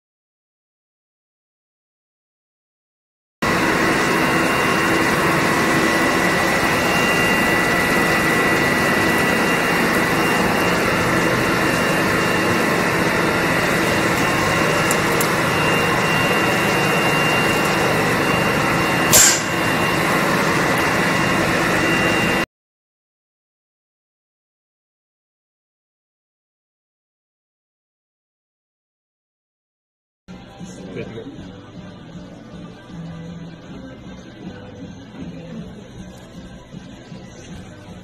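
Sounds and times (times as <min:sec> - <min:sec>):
vacuum cleaner whining: 0:03.4 - 0:22.5.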